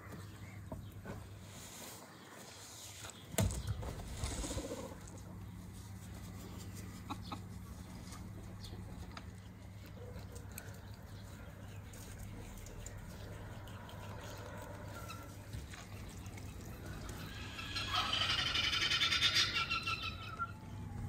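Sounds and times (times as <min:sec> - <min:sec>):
steady low hum: 0:03.2 - 0:18.7, 0:19.6 - 0:21.0
chickens clucking: 0:04.2 - 0:20.7.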